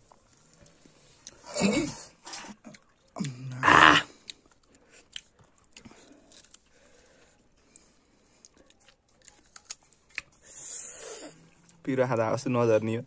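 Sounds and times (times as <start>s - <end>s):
crunching and chewing: 0.0s - 11.9s
man crying out: 3.5s - 4.1s.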